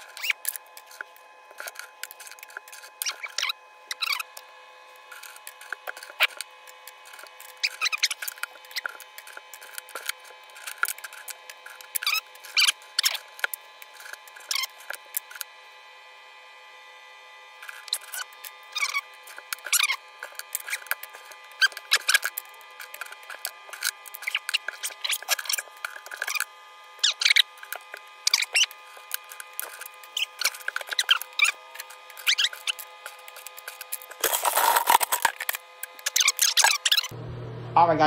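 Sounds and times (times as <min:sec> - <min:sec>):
scrap metal clinking and scraping: 0:27.7 - 0:36.8
metal rattling in a bucket: 0:34.0 - 0:35.5.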